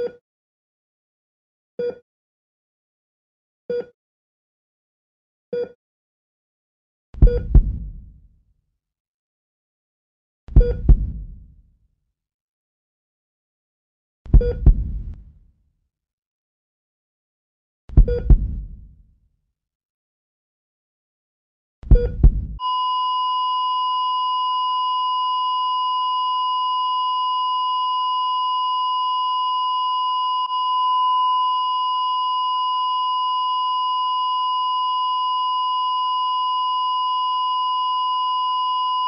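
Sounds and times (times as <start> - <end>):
low heartbeat thump: 7.2 - 8.2, 10.5 - 11.6, 14.3 - 15.3, 17.9 - 19.0, 21.8 - 22.6
flatline alarm tone: 22.6 - 39.0.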